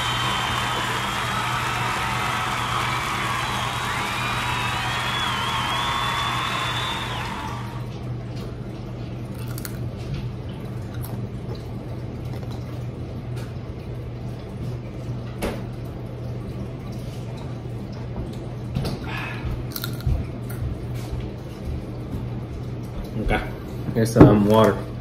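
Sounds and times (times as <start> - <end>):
child chewing crunchy chips: 9.2 - 12.8, 19.1 - 20.6.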